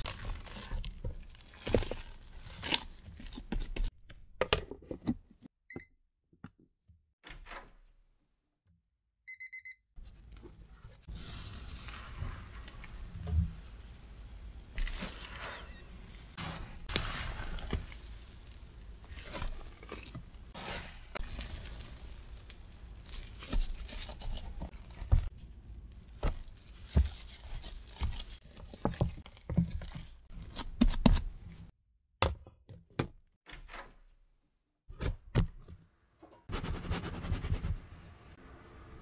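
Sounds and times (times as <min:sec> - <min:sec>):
dough squelching and tearing: 0:00.0 - 0:03.9, 0:10.2 - 0:31.7.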